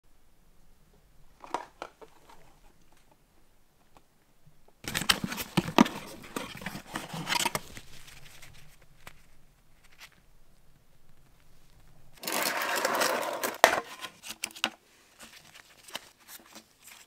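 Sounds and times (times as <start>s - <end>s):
cardboard crackling and scraping: 4.8s - 10.2s, 11.1s - 17.0s.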